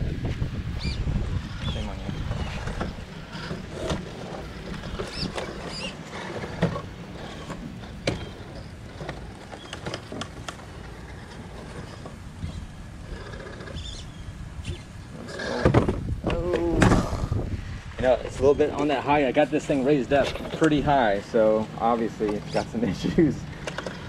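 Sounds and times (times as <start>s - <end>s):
rc car motor whirring: 1.5s - 15.4s
tyres scrabbling on boards: 2.5s - 12.2s.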